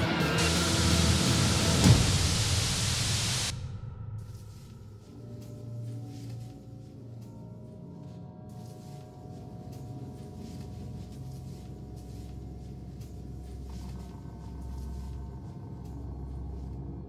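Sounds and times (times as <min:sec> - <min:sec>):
low rumbling drone: 0:00.0 - 0:08.4, 0:09.1 - 0:17.0
faint sustained tones: 0:00.0 - 0:17.0.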